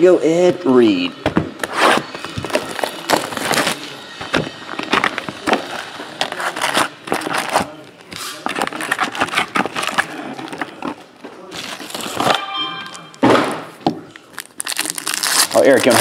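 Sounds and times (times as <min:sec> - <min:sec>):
foil packs crinkling: 0:02.2 - 0:04.0, 0:04.6 - 0:12.3, 0:14.1 - 0:16.0.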